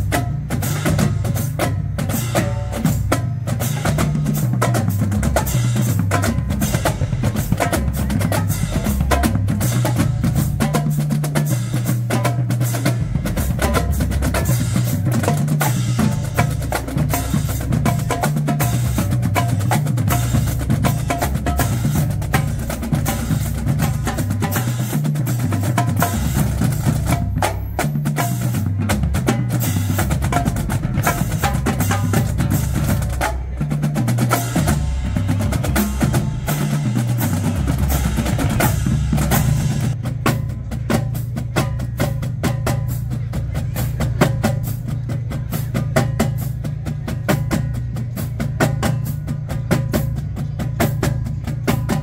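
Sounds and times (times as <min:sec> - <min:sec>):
bass drums: 0:00.0 - 0:52.0
snare drums: 0:00.0 - 0:52.0
tenor drums: 0:00.0 - 0:52.0.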